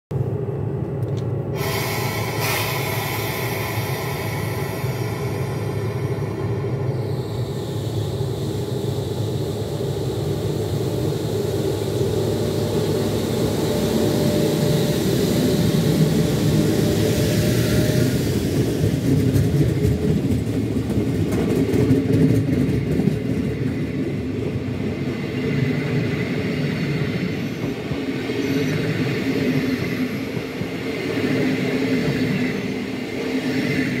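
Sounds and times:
train coaches rolling rumble: 0:00.1 - 0:34.0
electric locomotive blowers whirring: 0:01.5 - 0:19.8.

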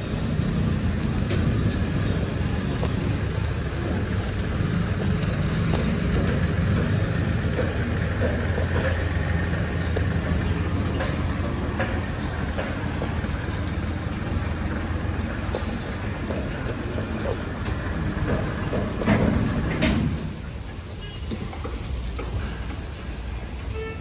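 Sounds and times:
low vehicle rumble: 0:00.0 - 0:24.0.

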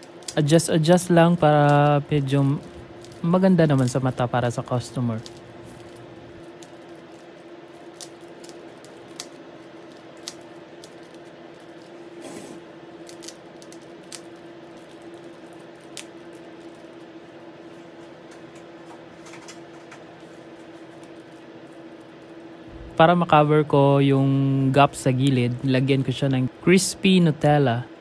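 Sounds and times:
cellophane crinkling: 0:00.0 - 0:12.2, 0:12.8 - 0:22.8
steady hum: 0:00.0 - 0:28.0.

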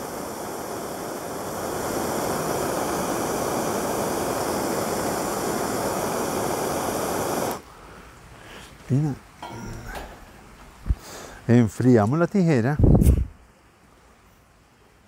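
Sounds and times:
gas torch hissing: 0:00.0 - 0:07.8, 0:09.4 - 0:11.5.

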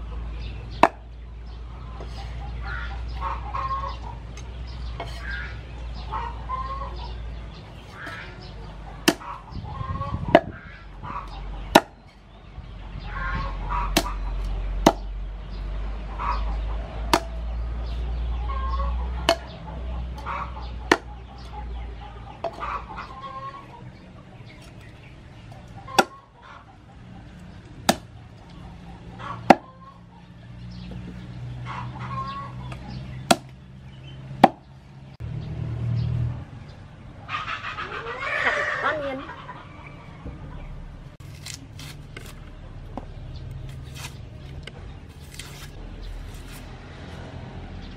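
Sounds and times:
chickens clucking: 0:00.0 - 0:35.2, 0:36.6 - 0:41.2
cleaver chopping on wooden board: 0:00.8 - 0:01.0, 0:09.0 - 0:09.3, 0:11.7 - 0:12.0, 0:14.8 - 0:15.1, 0:17.1 - 0:17.4, 0:19.2 - 0:19.5, 0:20.9 - 0:21.1, 0:26.0 - 0:26.2, 0:27.8 - 0:28.1, 0:32.7 - 0:33.6, 0:34.4 - 0:34.7.

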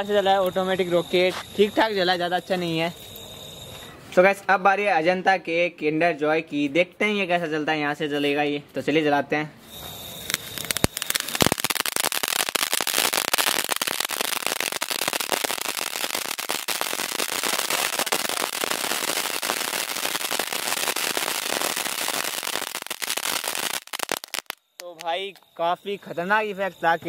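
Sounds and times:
firecracker sparks crackling: 0:09.7 - 0:25.4
sharp cracks: 0:10.2 - 0:25.2.

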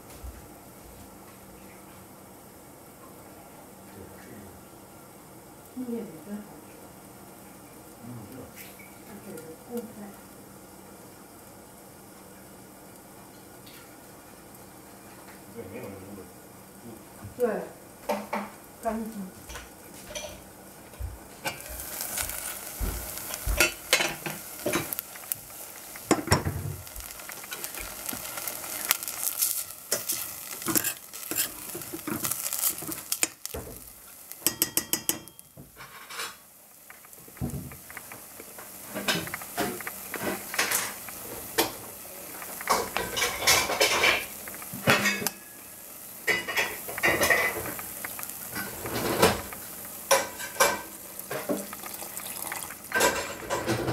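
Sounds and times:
grains sizzling in pan: 0:00.0 - 0:53.9
metal spoon scraping saucepan: 0:30.0 - 0:31.6.

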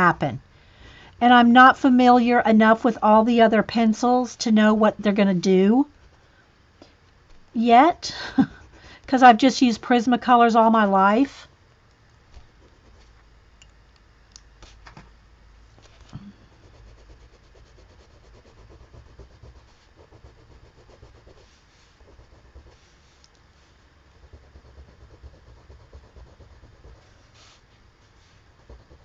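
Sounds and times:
low steady rumble: 0:00.0 - 0:29.0
pencil scratching on paper: 0:16.4 - 0:29.0.

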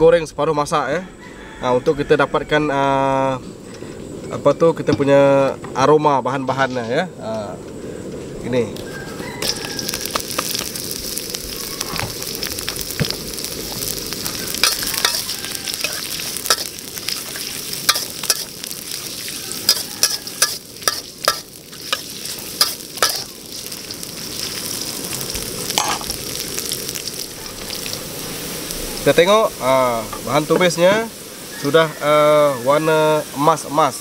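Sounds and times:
aromatics sizzling in hot oil: 0:08.8 - 0:34.0
metal spatula scraping a wok: 0:14.6 - 0:23.3.

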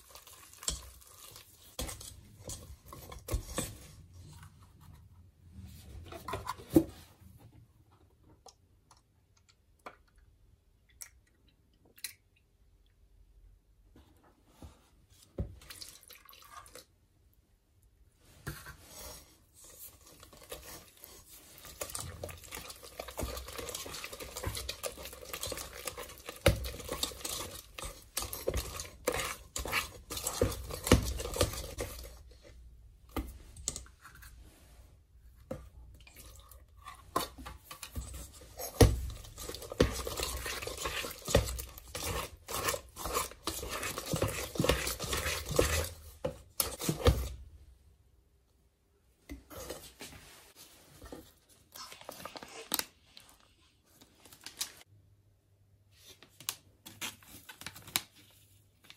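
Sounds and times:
whisk beating batter: 0:00.0 - 0:04.2, 0:19.0 - 0:32.6, 0:36.0 - 0:47.4
whisk clicking on metal bowl: 0:38.8 - 0:47.1.

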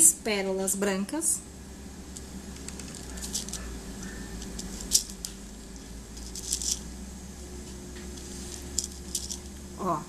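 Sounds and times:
faint steady hum: 0:00.0 - 0:10.0
beads clicking: 0:02.1 - 0:06.9, 0:08.1 - 0:09.6.

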